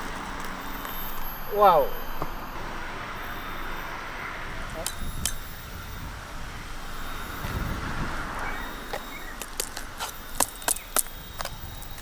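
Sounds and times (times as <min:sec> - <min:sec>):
husk clicking and cracking: 0:08.9 - 0:12.0.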